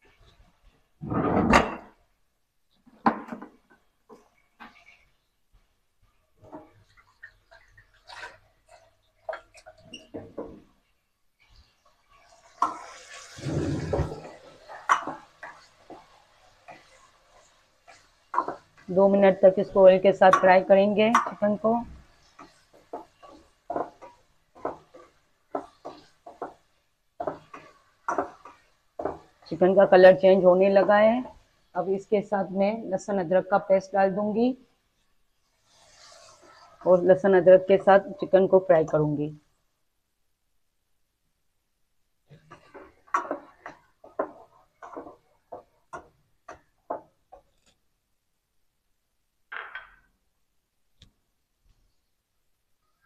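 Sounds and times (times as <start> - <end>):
chicken frying in oil: 5.9 - 32.6, 34.4 - 38.7, 42.2 - 47.9
spoon scraping pan: 6.4 - 10.8, 11.4 - 31.8, 34.9 - 39.1, 42.3 - 47.9
ladle scraping metal pan: 12.3 - 16.1, 35.5 - 37.0.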